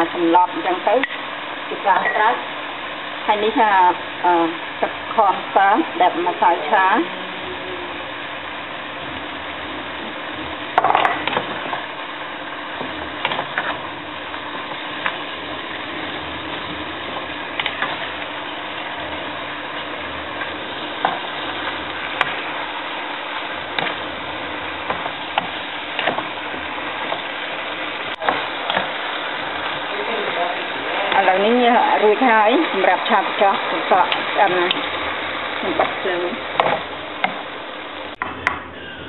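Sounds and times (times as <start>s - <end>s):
food sizzling in a pan: 0.0s - 38.2s
spatula scraping and knocking pan: 19.8s - 22.6s, 23.7s - 27.4s.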